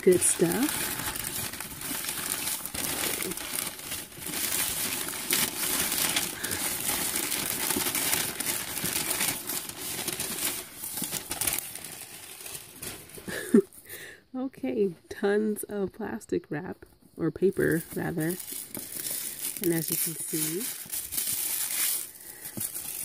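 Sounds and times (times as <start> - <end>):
packing paper crumpling: 0.0 - 13.8, 17.4 - 23.0.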